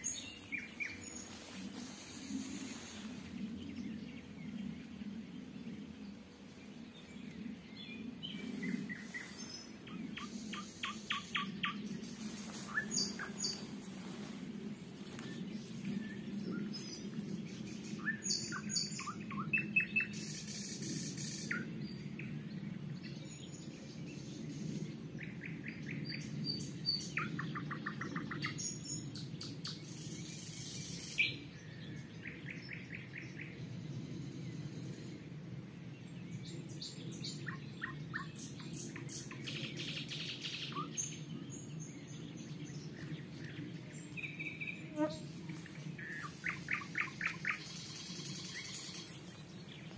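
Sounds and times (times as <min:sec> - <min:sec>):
nightingales singing: 0:00.0 - 0:14.2, 0:36.4 - 0:49.9
faint low rumble: 0:00.0 - 0:30.3.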